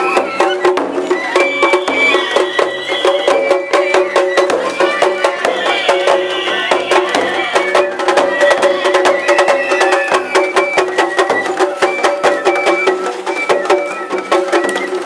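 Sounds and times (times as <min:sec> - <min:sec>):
festival percussion strikes: 0:00.0 - 0:15.0.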